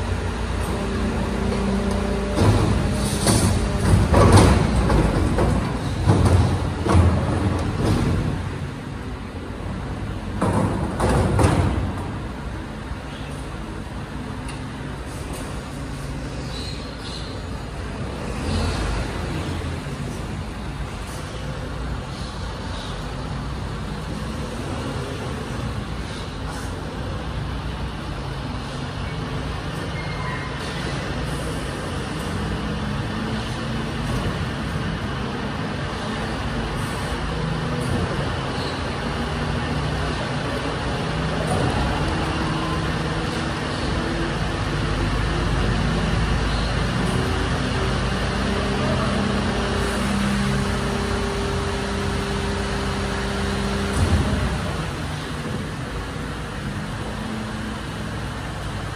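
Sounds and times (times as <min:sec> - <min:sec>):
garbage truck diesel engine: 0:00.0 - 0:58.9
truck engine running: 0:30.8 - 0:58.9.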